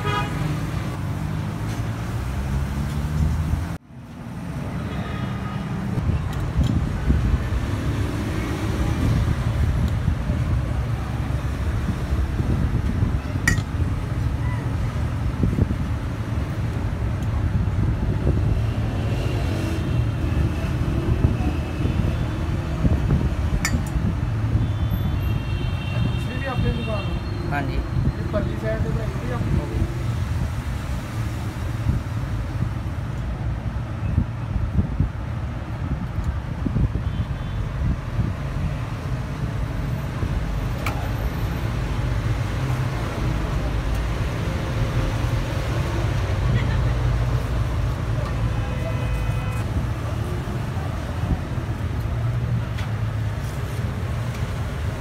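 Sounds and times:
street background rumble: 0.0 - 55.0.

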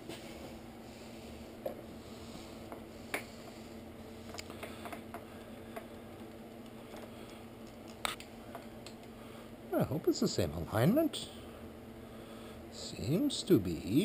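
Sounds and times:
steady low hum: 0.0 - 14.0
small clicks and taps of parts: 4.3 - 9.2.

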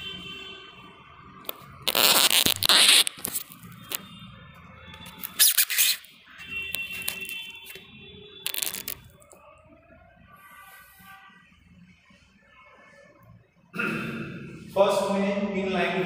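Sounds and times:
rubbing against phone microphone: 1.8 - 4.0, 5.1 - 6.1, 8.5 - 9.1.

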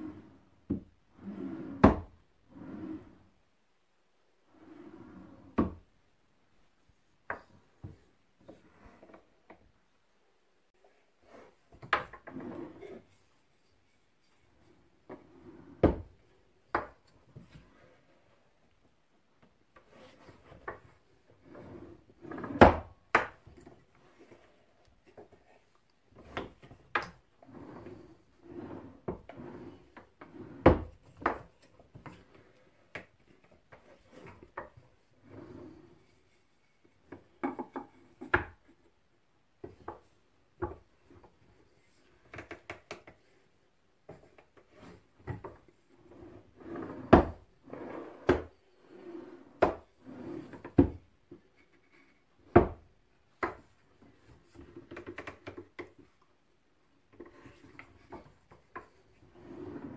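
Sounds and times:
wooden vise rubbing and sliding: 1.1 - 3.2, 11.1 - 18.5, 19.7 - 38.9, 44.1 - 52.8, 57.1 - 59.9.

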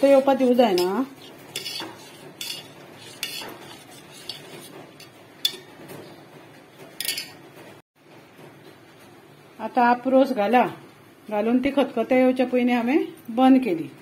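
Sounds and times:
ladle clinking and scraping pot: 0.0 - 6.0, 7.0 - 7.4.

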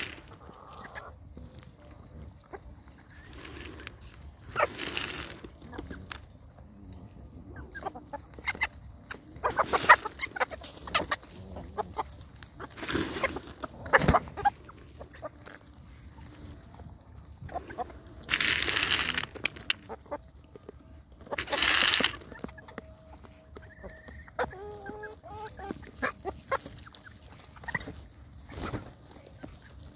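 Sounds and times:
chickens clucking: 0.0 - 29.9
rough noisy sound: 2.5 - 6.5, 7.2 - 15.8, 17.4 - 20.2.

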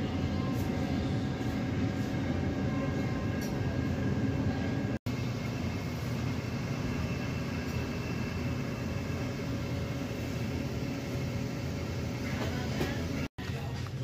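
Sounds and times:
air handling hum: 0.0 - 14.0
refrigerated display cases humming: 0.0 - 14.0.

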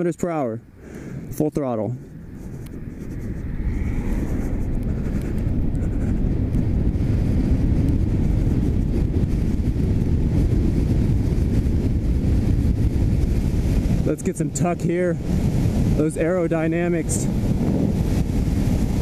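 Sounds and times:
wind on microphone: 0.6 - 19.0
motorcycle road noise accelerating: 2.0 - 14.1.

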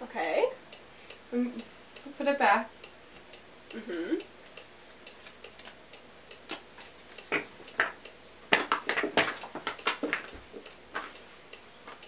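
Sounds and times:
clock ticking: 0.0 - 8.2.

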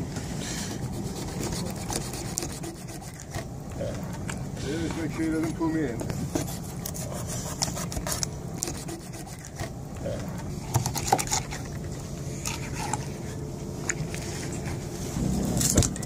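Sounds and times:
knife scraping fish bones: 0.8 - 3.5
low rumble: 14.9 - 16.0.

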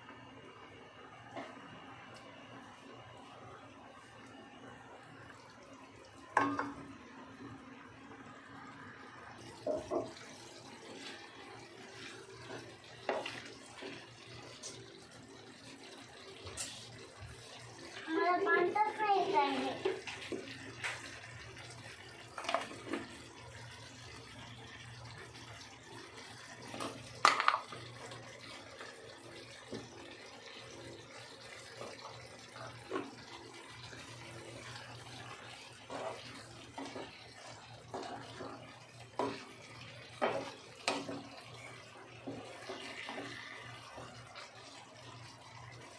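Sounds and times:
wooden spatula scraping a pan: 11.8 - 14.8, 16.4 - 17.5, 34.6 - 44.2.

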